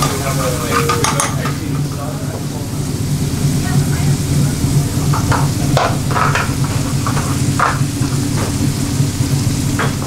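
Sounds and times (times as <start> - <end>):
gas flames roaring: 0.0 - 10.0
pans sizzling: 0.0 - 10.0.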